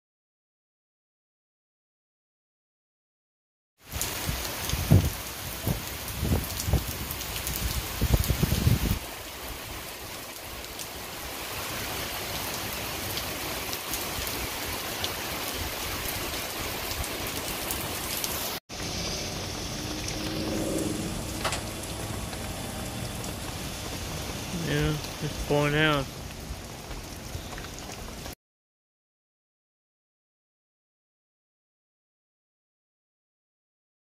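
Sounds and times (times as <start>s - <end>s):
heavy rain pouring: 3.8s - 28.4s.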